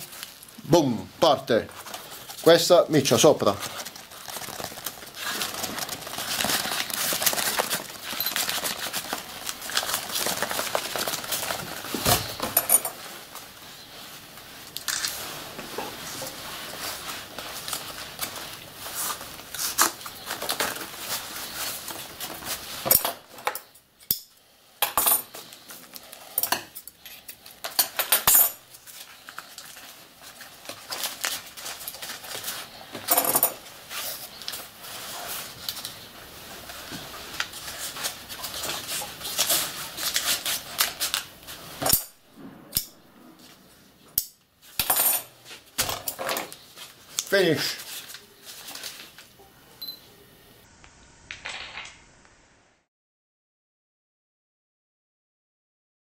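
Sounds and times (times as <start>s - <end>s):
paper rustling and crinkling: 0.0s - 23.4s, 25.3s - 26.4s, 27.0s - 42.0s, 44.6s - 49.4s.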